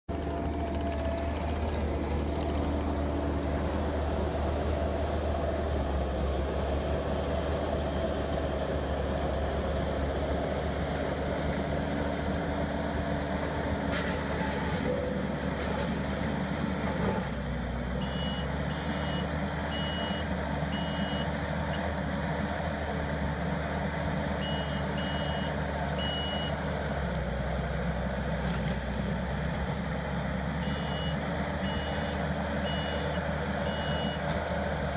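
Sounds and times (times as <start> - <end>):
diesel engine running: 0.1 - 34.9
backup alarm beeps: 18.0 - 21.3, 24.4 - 26.5, 30.6 - 34.2.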